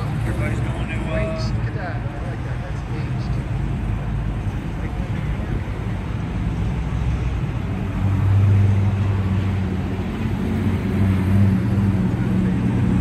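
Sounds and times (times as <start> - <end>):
vehicles driving slowly past: 0.0 - 13.0.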